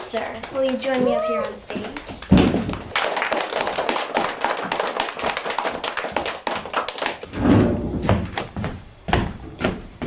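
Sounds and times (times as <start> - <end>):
audience applauding: 0.4 - 7.3.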